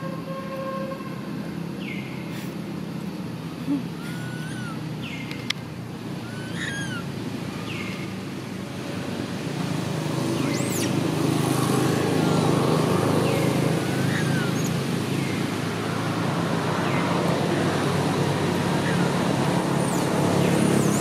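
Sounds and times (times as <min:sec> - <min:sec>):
short chirping calls: 0:06.2 - 0:08.1, 0:13.2 - 0:15.5.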